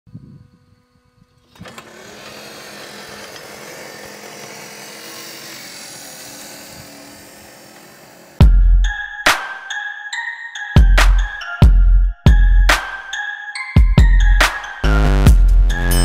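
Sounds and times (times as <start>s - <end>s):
motor hum: 0.1s - 8.5s
robot tracks clattering: 1.4s - 8.4s.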